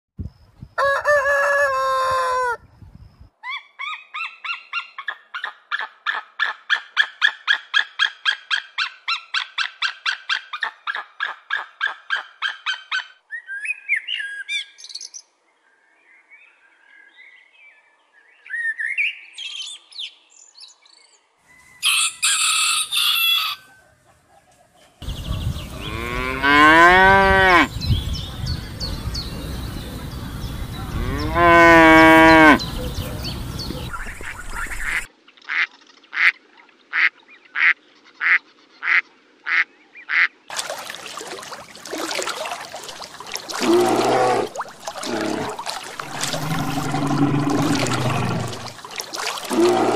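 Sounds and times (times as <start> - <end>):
rooster crowing: 0.8 - 2.6, 21.8 - 23.8
cattle mooing: 25.8 - 27.7, 30.9 - 32.7, 43.6 - 48.7, 49.4 - 49.9
blackbird singing: 27.5 - 35.1
rapid repeated bird calls: 32.3 - 36.4.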